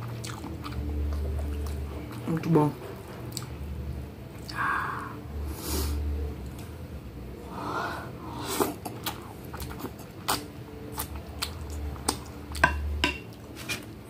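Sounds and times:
wet chewing smacks: 8.6 - 12.3.

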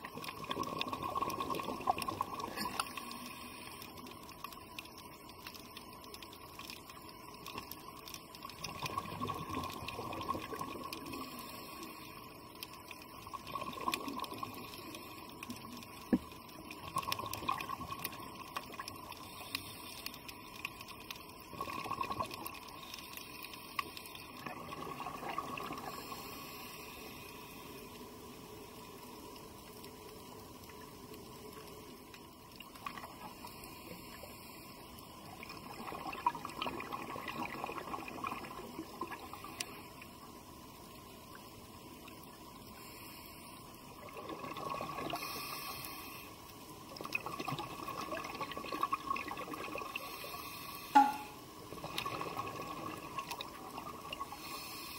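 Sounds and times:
diver's air bubbles underwater: 0.0 - 3.2, 8.6 - 11.2, 24.4 - 26.2, 35.4 - 39.4, 44.0 - 45.3, 46.9 - 50.0, 51.0 - 54.4
steady water hiss: 0.0 - 54.9.

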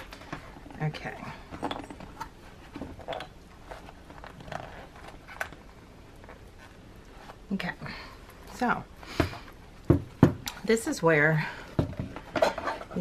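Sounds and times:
soft rustles: 0.0 - 7.7.

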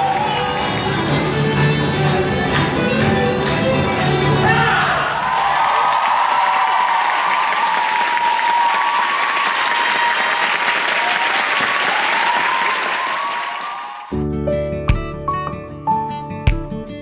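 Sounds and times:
audience applauding: 0.0 - 3.7, 5.0 - 14.2
acoustic guitar music: 14.1 - 17.0.

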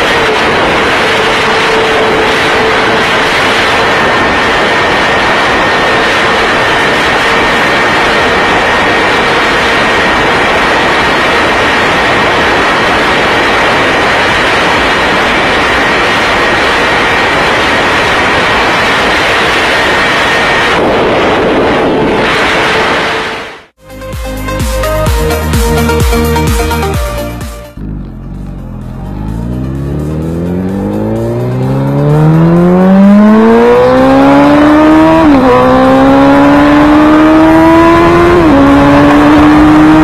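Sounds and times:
wind rush over microphone: 0.0 - 23.6
motorcycle engine whine: 0.0 - 24.0, 25.2 - 40.0.

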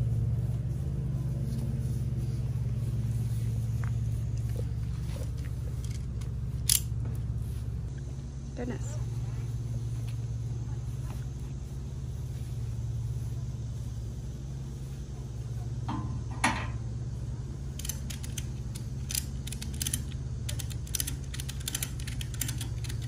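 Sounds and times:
steady low hum: 0.0 - 23.0
ratchet clicks: 17.8 - 23.0
ratchet strap clack: 17.8 - 23.0.

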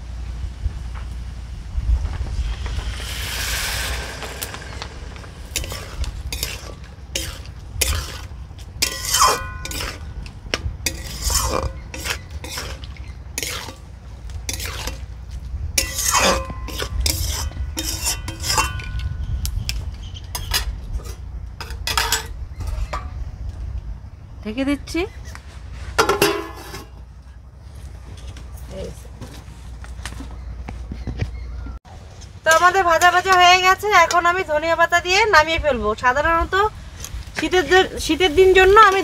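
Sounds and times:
water hissing in hot pan: 2.3 - 9.9
metal spatula scraping pan: 2.8 - 13.9, 14.5 - 15.1, 15.8 - 19.3, 20.1 - 23.0.

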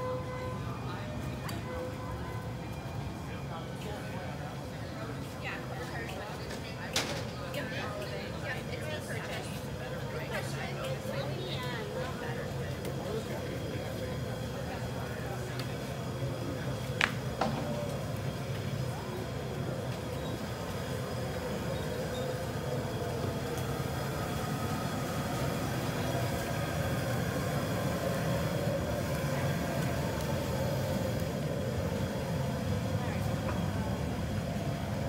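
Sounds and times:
low street rumble: 0.0 - 35.0.

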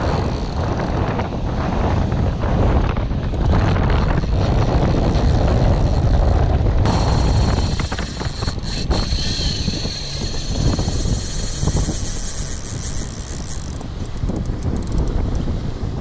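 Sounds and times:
wind buffeting microphone: 0.0 - 16.0
steady high whine: 6.8 - 14.6.

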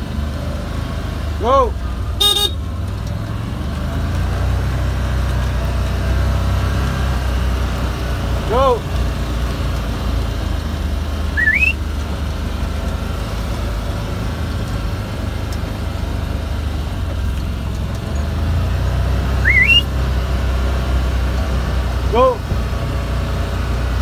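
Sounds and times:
vehicle engine running: 0.0 - 24.0
sharp rising whistles: 11.3 - 11.8, 19.4 - 20.0.

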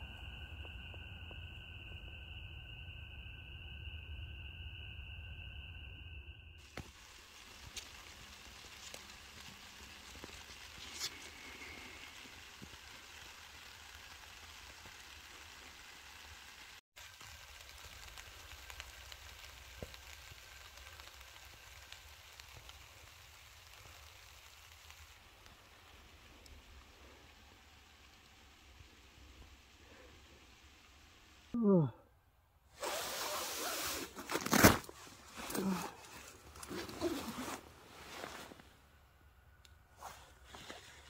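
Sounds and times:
light rain hissing on plastic sheet: 6.6 - 31.6, 32.8 - 39.0, 39.7 - 41.0.

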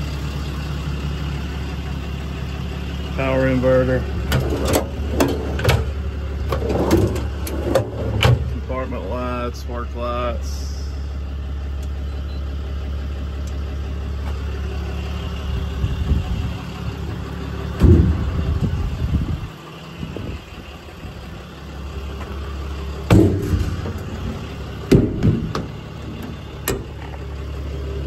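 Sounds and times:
diesel engine idling: 0.0 - 28.0
compartment doors clunking shut: 4.2 - 8.6, 23.1 - 27.2.

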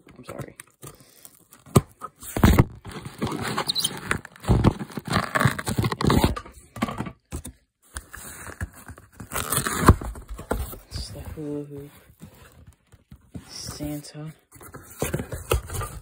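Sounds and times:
hands handling cardboard box: 7.3 - 16.0.

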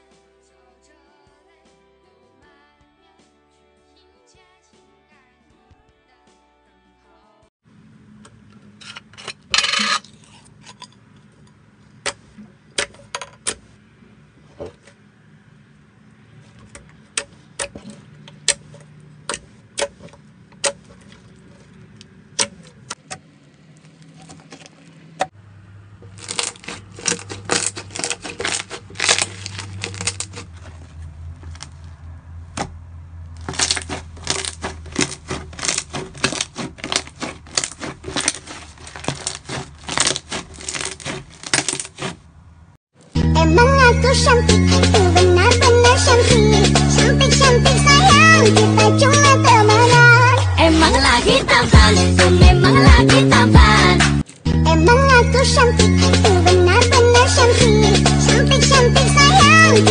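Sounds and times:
slime squished by hand: 26.1 - 31.8, 33.4 - 42.3.

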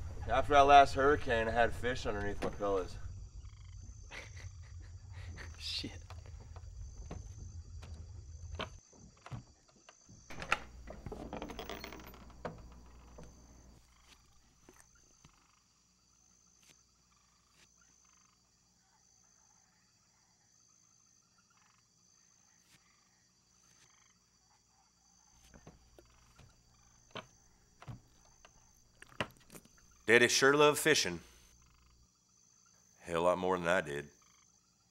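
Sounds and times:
low rumble: 0.0 - 8.6
frogs: 0.0 - 34.9
insects: 0.0 - 34.9
knocks: 10.3 - 13.8.

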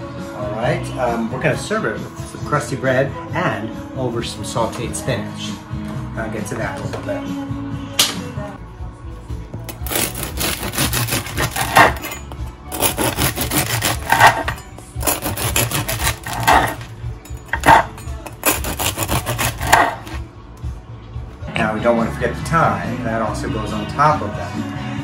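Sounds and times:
bread knife sawing through loaf: 9.8 - 16.8, 17.6 - 20.2.

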